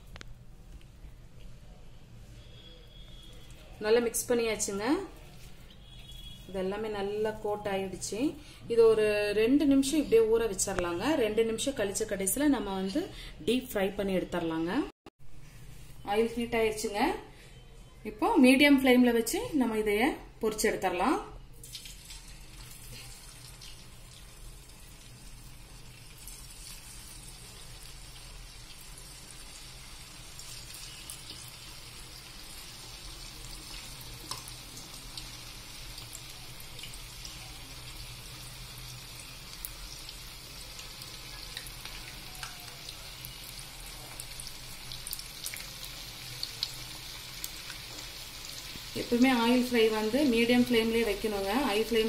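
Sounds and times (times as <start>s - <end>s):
food deep-frying in hot oil: 21.5s - 52.0s
small crackles of oil: 21.6s - 24.3s.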